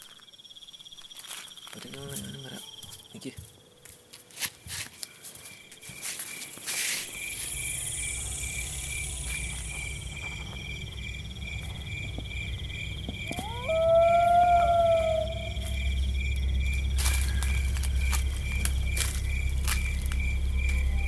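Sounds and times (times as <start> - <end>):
crickets chirping: 0.0 - 21.0
high insect buzz: 5.4 - 21.0
low drone: 6.7 - 21.0
rising tone: 6.9 - 21.0.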